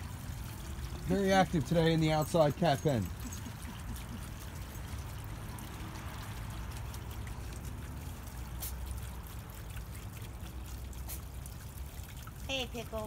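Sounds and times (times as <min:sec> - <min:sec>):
water trickling and pouring: 0:00.0 - 0:13.0.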